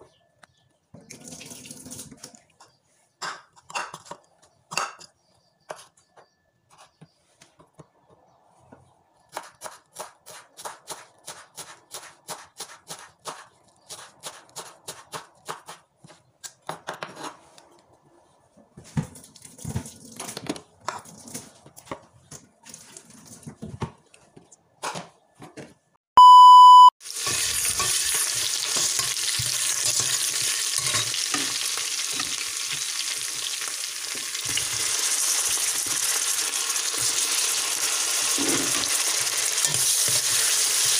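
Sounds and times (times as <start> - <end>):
short loud beep: 26.2 - 26.9
vegetables sizzling in a pot: 27.0 - 40.9.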